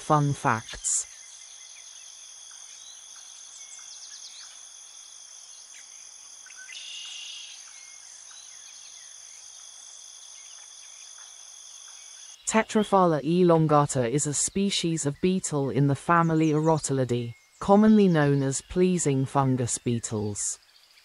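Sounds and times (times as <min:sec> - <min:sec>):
crickets trilling: 0:01.0 - 0:12.4
insect buzz: 0:01.0 - 0:12.5.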